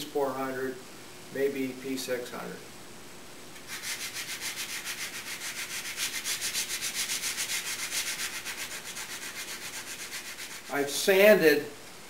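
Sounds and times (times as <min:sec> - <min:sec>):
sandpaper scratching wood: 0:03.7 - 0:11.0.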